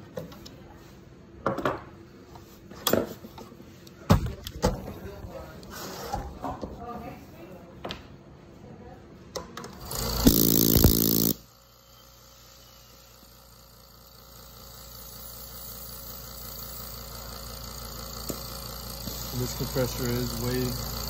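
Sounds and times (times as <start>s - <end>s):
oxygen concentrator running: 9.6s - 21.0s.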